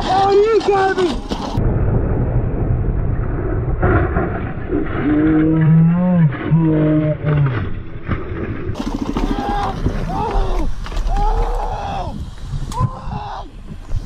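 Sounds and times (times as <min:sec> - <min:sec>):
wind: 0:00.0 - 0:14.0
motorcycle crashing knocks and scrapes: 0:08.1 - 0:11.1
person yelling in alarm: 0:09.3 - 0:13.5.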